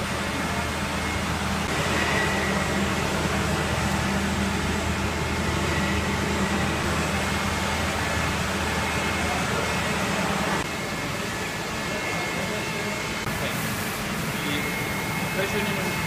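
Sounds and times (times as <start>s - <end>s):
machinery humming and hissing: 0.0s - 16.0s.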